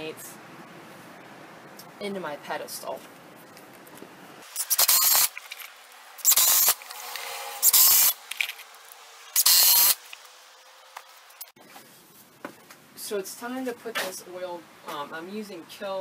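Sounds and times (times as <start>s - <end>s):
impact driver driving screws into wood: 4.4s - 8.7s, 9.4s - 10.2s.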